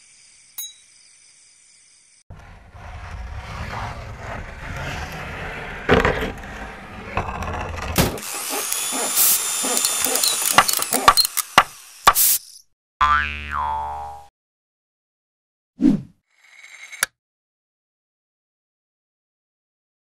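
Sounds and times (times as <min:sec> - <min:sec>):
metal trampoline scraping ground: 0:02.3 - 0:08.2.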